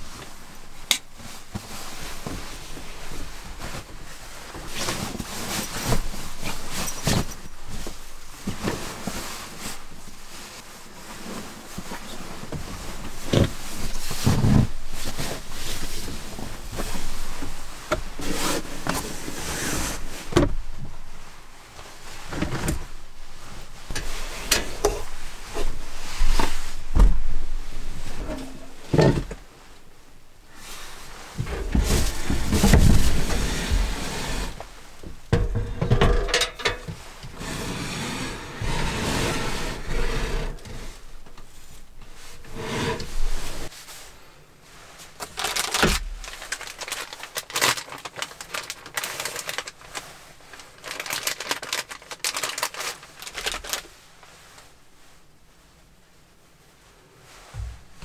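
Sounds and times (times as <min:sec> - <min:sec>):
rustling objects: 0:00.0 - 0:55.6
heavy clunks: 0:23.9 - 0:29.4.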